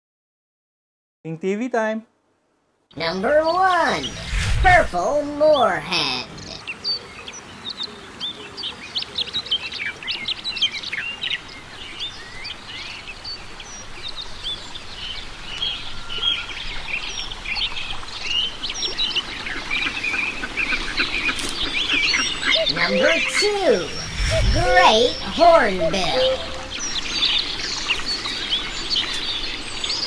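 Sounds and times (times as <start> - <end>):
birds chirping and whistling: 3.6 - 4.9, 10.1 - 30.0.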